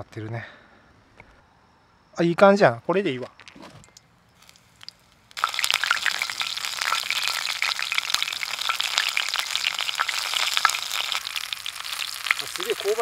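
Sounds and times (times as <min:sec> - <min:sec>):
deep-frying sizzle with pops: 0:03.9 - 0:13.0.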